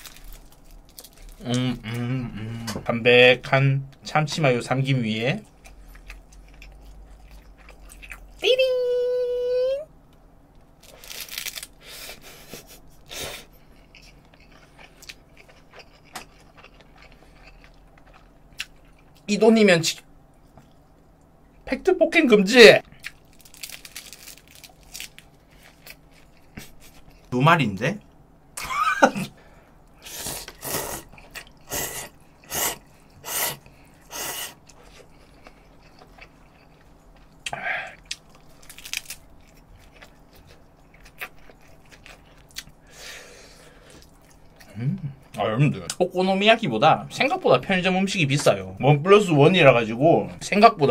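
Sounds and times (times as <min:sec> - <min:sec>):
crunchy chewing: 0:05.4 - 0:08.4, 0:10.8 - 0:12.5, 0:13.1 - 0:19.3, 0:22.8 - 0:27.3, 0:30.0 - 0:42.8.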